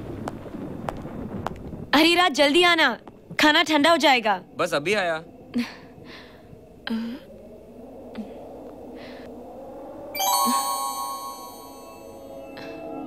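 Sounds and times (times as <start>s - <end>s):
low film-score drone: 4.4s - 13.0s
bell-like chord ringing: 10.2s - 12.6s.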